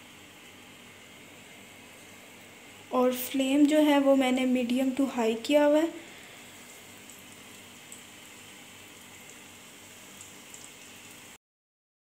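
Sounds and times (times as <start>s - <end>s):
food sizzling in oil: 0.0s - 11.4s.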